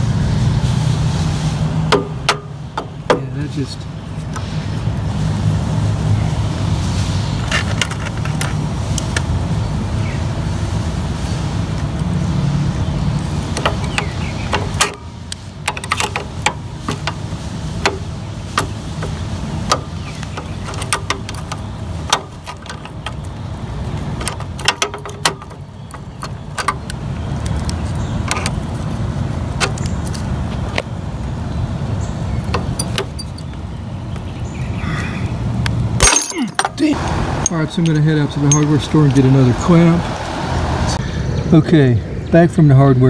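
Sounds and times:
hand tools clicking on metal: 13.5 - 23.3, 24.2 - 27.0, 32.5 - 33.6, 36.0 - 38.8.

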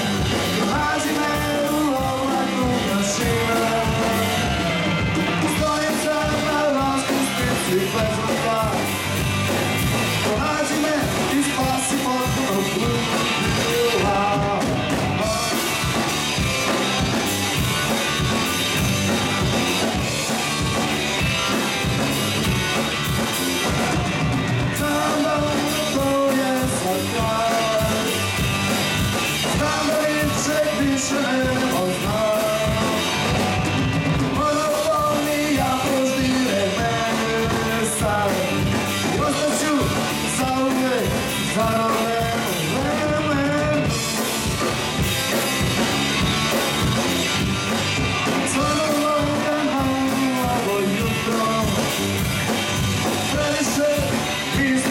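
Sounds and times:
person singing: 0.0 - 9.0, 10.1 - 16.0, 23.6 - 28.5, 29.4 - 33.5, 34.2 - 44.7, 48.4 - 52.0, 53.0 - 54.9
rock band playing live: 0.0 - 54.9.

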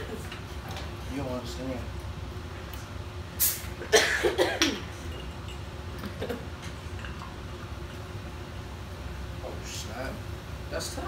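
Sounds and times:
bottle cap hiss of gas: 3.4 - 3.8.

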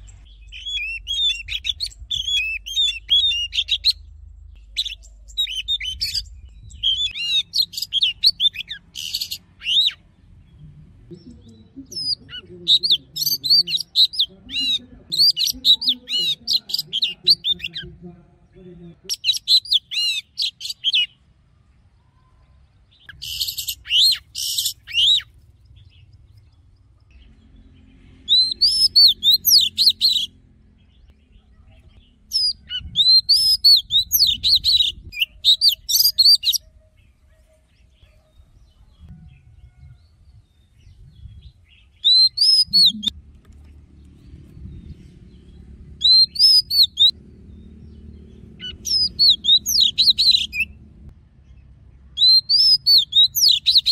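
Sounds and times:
bird singing whistled phrases: 0.3 - 4.0, 32.3 - 36.7, 42.0 - 43.1, 48.6 - 50.7, 52.2 - 53.9.

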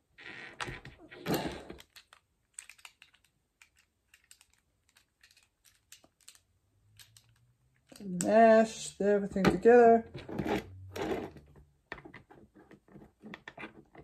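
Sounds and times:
plastic clicks: 0.5 - 8.4
rustle of handling plastic parts: 1.3 - 8.2.

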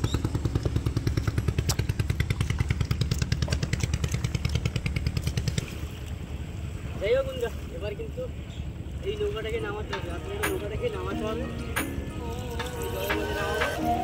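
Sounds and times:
small engine running: 0.0 - 5.7.

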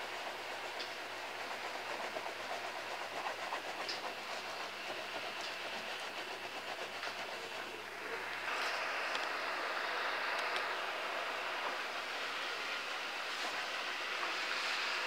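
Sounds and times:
broth boiling with small pops: 0.0 - 7.9.

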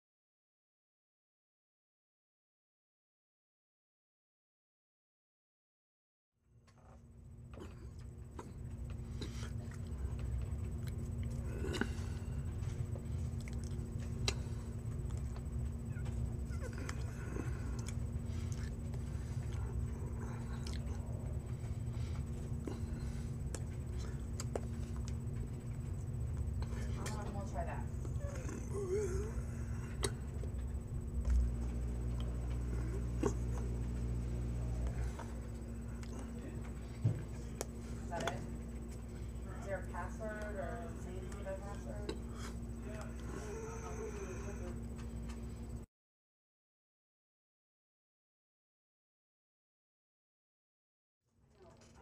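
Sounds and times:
low room rumble and hum: 6.4 - 45.9, 51.3 - 52.0.

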